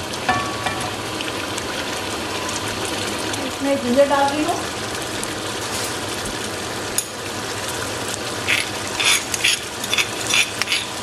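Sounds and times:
meat sizzling in oil: 0.0s - 11.0s
scraping in a stone mortar: 8.5s - 11.0s.

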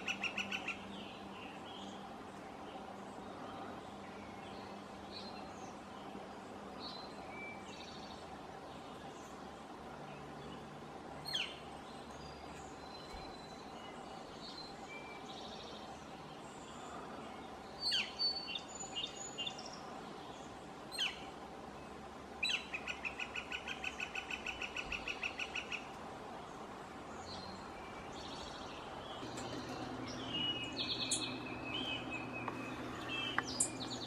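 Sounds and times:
rapid series of bird notes: 27.9s - 34.0s.

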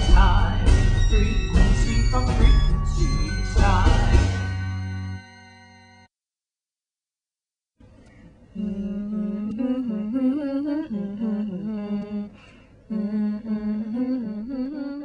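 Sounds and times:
person humming a melody: 8.6s - 15.0s.

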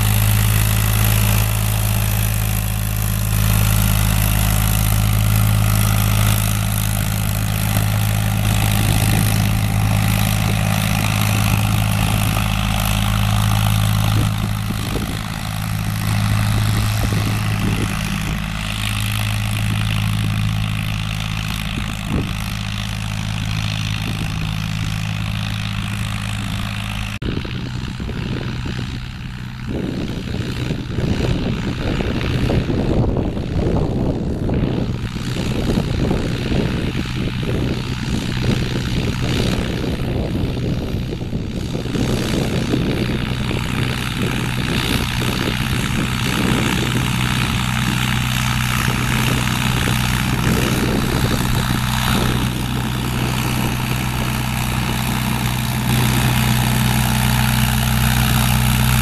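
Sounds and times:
rushing noise: 0.0s - 29.6s
tractor diesel engine running: 0.0s - 59.0s.

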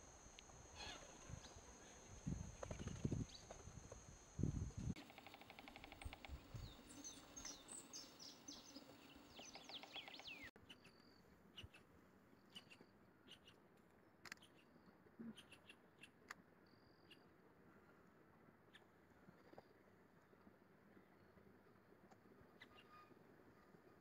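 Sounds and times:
woodpecker calling: 5.0s - 11.0s.

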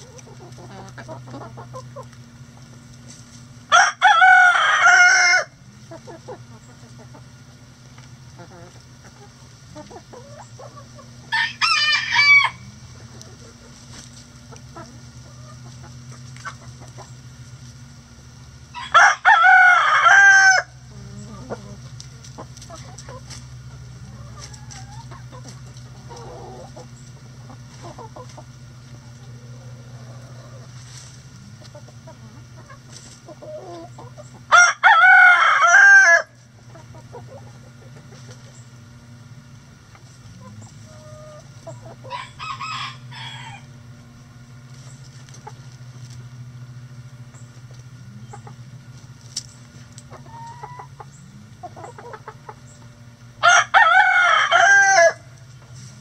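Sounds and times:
hens clucking softly: 0.0s - 3.2s, 4.1s - 11.8s, 12.4s - 18.0s, 20.8s - 34.6s, 36.4s - 43.7s, 44.6s - 46.3s, 47.0s - 53.1s
rooster crowing: 3.7s - 5.6s, 11.3s - 12.7s, 18.7s - 20.8s, 34.5s - 36.4s, 42.0s - 43.7s, 53.4s - 55.3s.

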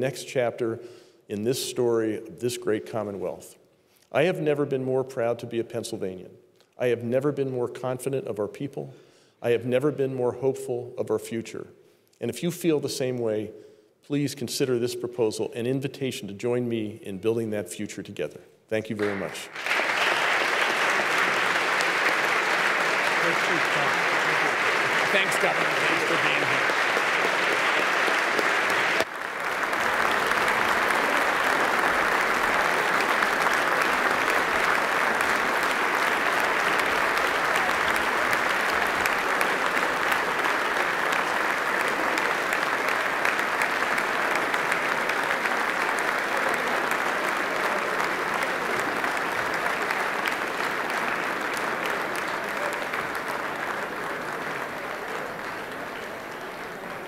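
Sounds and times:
large crowd applauding: 19.0s - 57.0s.

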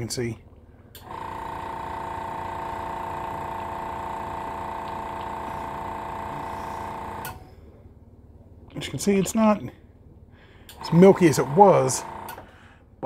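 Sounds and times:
air compressor motor humming: 1.0s - 7.5s, 10.7s - 12.8s.

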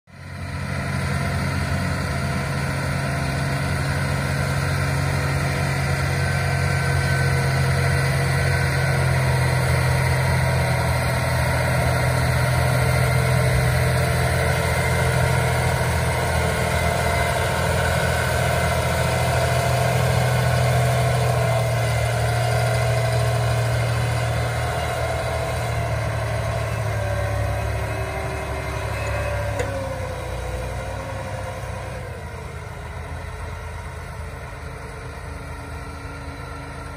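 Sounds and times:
tractor diesel engine under load: 0.1s - 36.9s.

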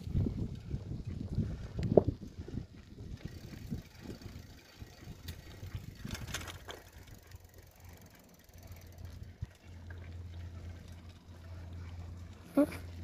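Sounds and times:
bike rolling on paved road: 0.0s - 13.0s.

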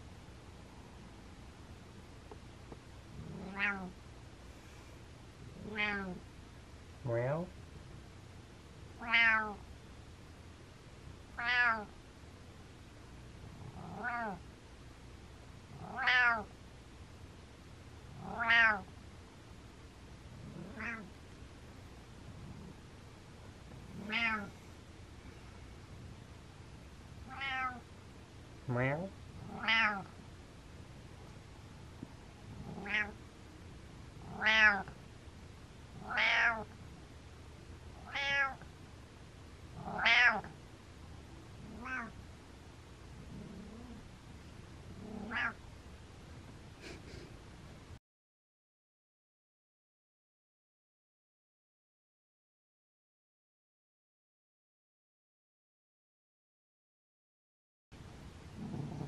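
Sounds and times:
cat meowing: 3.4s - 3.9s, 5.6s - 6.2s, 9.0s - 9.6s, 11.4s - 11.9s, 13.9s - 14.4s, 15.8s - 16.5s, 18.2s - 18.9s, 20.6s - 21.1s, 24.0s - 24.5s, 27.3s - 27.8s, 29.5s - 30.1s, 32.8s - 33.2s, 34.3s - 35.0s, 36.0s - 36.7s, 38.0s - 38.6s, 39.8s - 40.5s, 41.7s - 42.2s, 45.0s - 45.6s.

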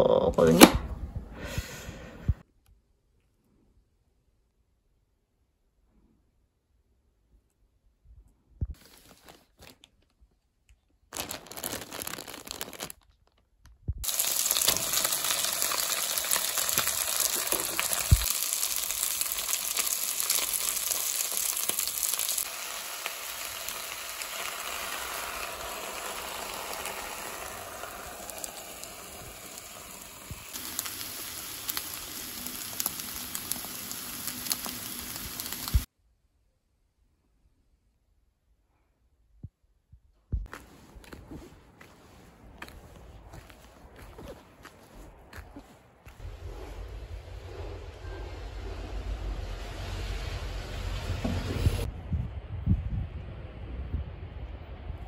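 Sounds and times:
rice sizzling in a pan: 14.0s - 35.9s.

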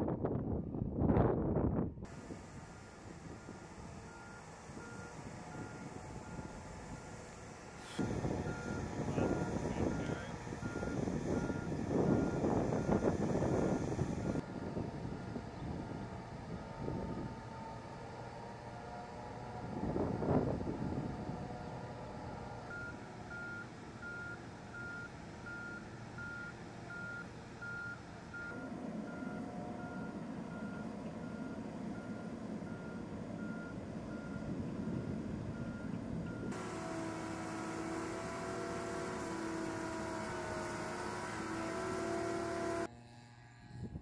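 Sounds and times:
low engine running: 2.0s - 43.7s
alarm beeping: 7.9s - 14.4s.

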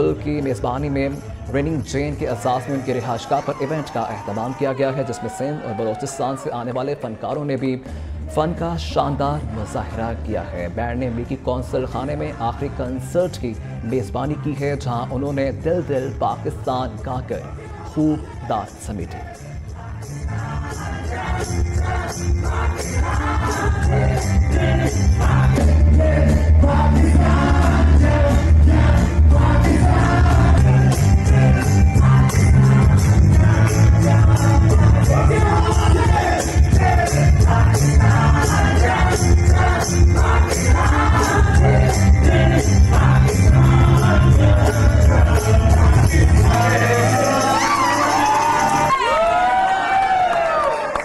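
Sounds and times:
voices singing together: 19.0s - 48.9s
live band playing upbeat song: 19.4s - 49.0s.

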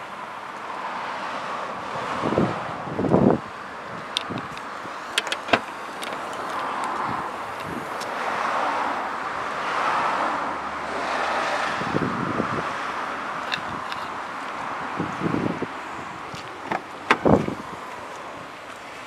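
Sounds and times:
wind buffeting microphone: 1.9s - 8.2s, 11.7s - 18.6s
car tailgate latch clicks: 4.2s - 6.5s, 16.6s - 17.6s.

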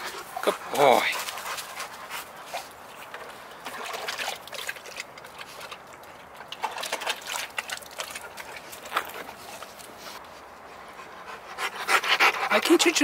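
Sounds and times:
dog lapping water: 0.0s - 9.8s.

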